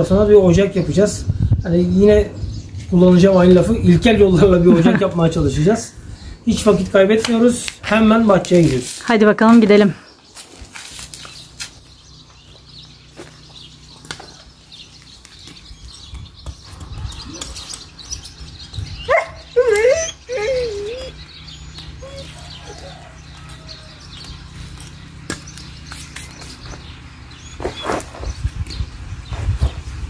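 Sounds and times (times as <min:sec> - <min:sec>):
animal wavering call: 0:19.1 - 0:24.0.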